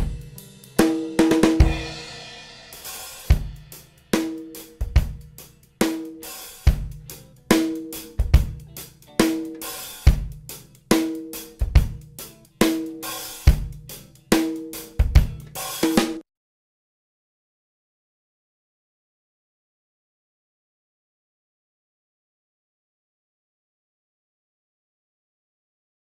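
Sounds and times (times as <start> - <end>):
drum kit groove: 0.0 - 16.2.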